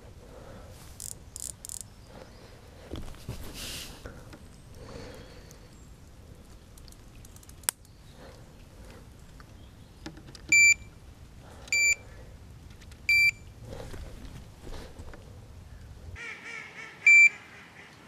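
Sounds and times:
bite alarm beeps: 10.5s - 10.9s, 11.7s - 12.0s, 13.1s - 13.4s, 17.1s - 17.3s.

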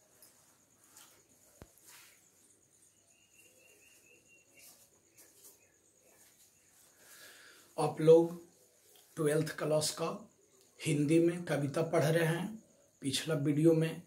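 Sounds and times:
soft clicks and rustles: 0.0s - 3.0s, 3.6s - 7.2s, 8.4s - 9.2s.

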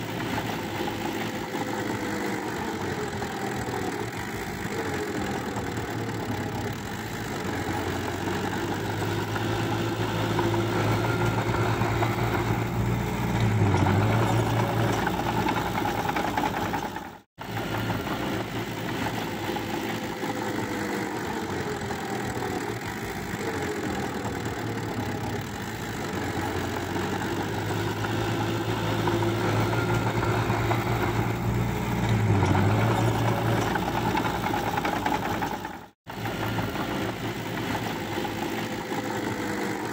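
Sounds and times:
bulldozer diesel engine running: 0.0s - 39.9s.

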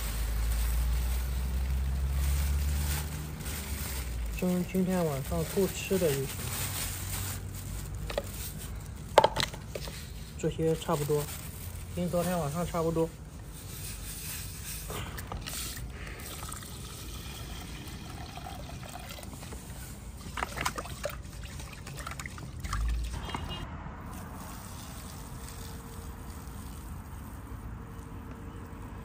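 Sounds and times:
water sloshing in a pot: 15.2s - 23.6s
water trickling: 16.2s - 23.6s.

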